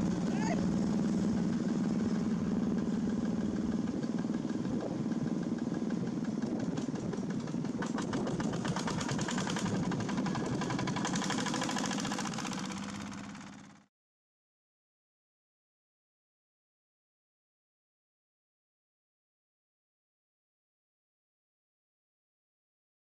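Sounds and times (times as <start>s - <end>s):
diesel engines humming: 0.0s - 13.8s
rapid knocking clatter: 1.1s - 13.9s.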